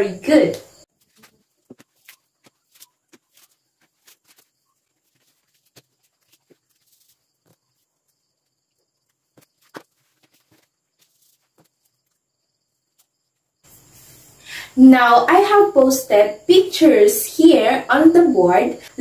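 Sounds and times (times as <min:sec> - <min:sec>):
paper rustling: 0:00.9 - 0:12.2.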